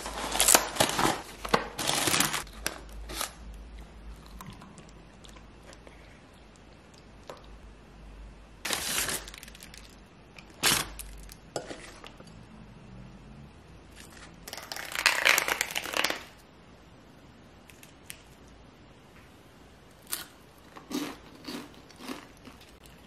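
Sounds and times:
rustling and crinkling: 0.0 - 3.4.

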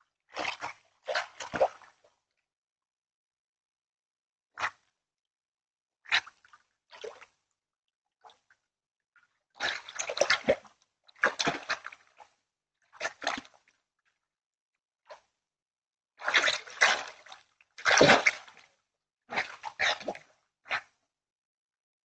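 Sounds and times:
water splashing in a pond: 0.3 - 2.1, 9.6 - 12.2, 16.2 - 18.7, 19.3 - 21.0.

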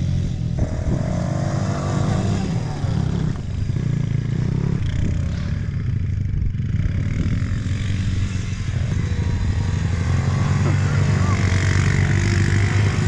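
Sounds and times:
motorbike and quad bike engines: 0.0 - 13.0.

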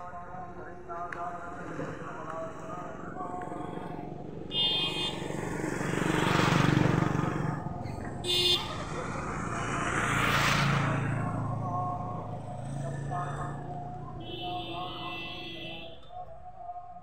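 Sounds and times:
road vehicles passing: 0.0 - 16.7.

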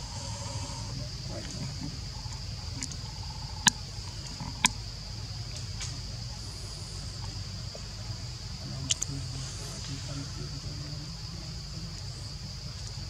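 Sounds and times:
high-pitched insect drone: 0.0 - 13.0
low steady hum: 0.0 - 13.0
sharp clicks: 8.8 - 9.2.

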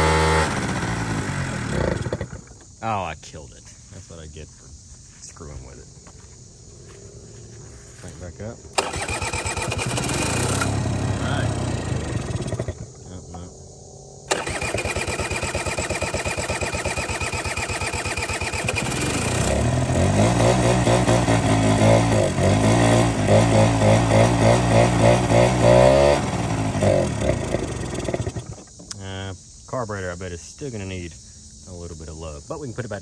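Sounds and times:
scooter engine idling and revving: 0.0 - 2.6, 8.8 - 13.0, 14.3 - 28.8.

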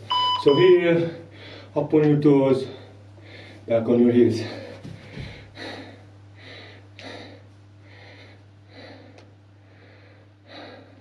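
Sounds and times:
steady low hum: 0.0 - 11.0
man breathing hard: 1.2 - 1.8, 2.6 - 3.7, 4.4 - 11.0.

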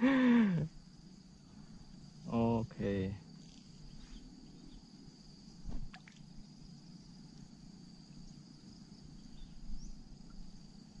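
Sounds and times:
insects trilling: 0.0 - 11.0
faint bird chirps: 3.3 - 6.2, 9.0 - 11.0.

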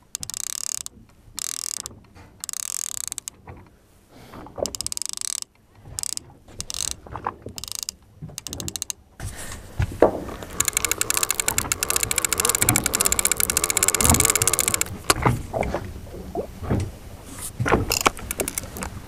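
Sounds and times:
fishing reel ratchet clicking: 0.0 - 3.4, 4.6 - 7.0, 7.6 - 9.0, 10.4 - 15.2, 17.9 - 18.9.

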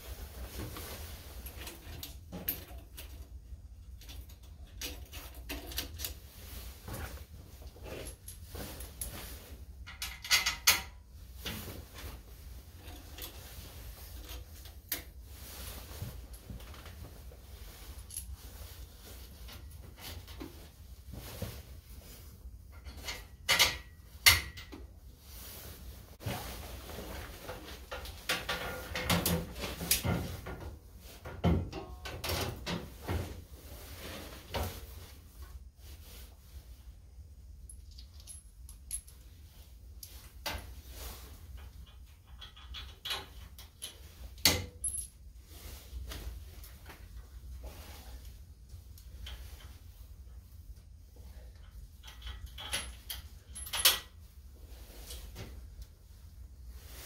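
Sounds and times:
steel clinking and rattling: 41.5 - 45.2, 51.6 - 54.1.

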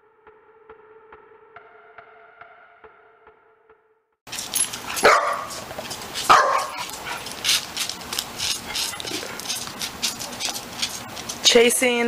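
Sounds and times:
light scuffs and clicks: 4.3 - 12.0
puppy barking: 4.6 - 11.4.

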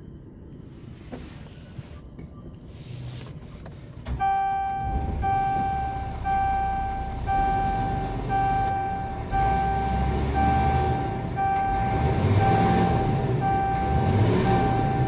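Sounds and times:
dashboard warning buzzer beeping: 4.2 - 15.0
diesel engine idling: 4.2 - 15.0.

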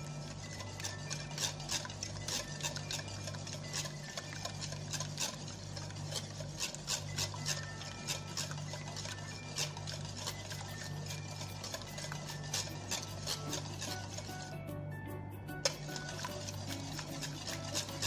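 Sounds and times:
whisk beating eggs in bowl: 0.0 - 14.8, 15.5 - 18.0.

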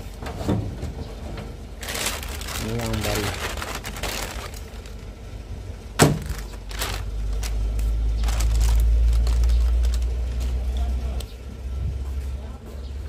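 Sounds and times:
low rumble: 0.6 - 12.2
plastic packaging rustling: 1.6 - 5.2, 6.0 - 11.2.

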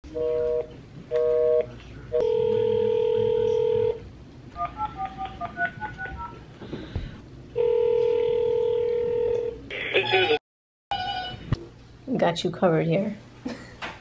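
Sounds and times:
telephone ringing tone: 0.2 - 4.0, 7.6 - 11.4.

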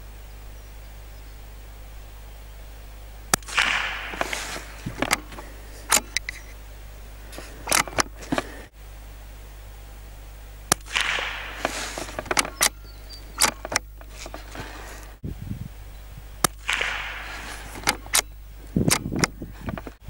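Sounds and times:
rifle shots: 3.3 - 8.7, 10.7 - 15.0, 16.4 - 19.3
light clicks and knocks: 7.3 - 8.7, 10.7 - 15.1, 16.4 - 20.0.

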